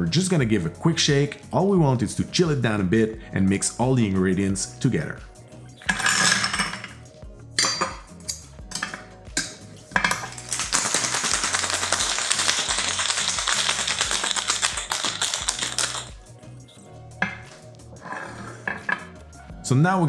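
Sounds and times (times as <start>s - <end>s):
metal shaker tin clinking on glass: 8.7s - 16.2s
ice rattling in cocktail shaker: 10.0s - 16.2s.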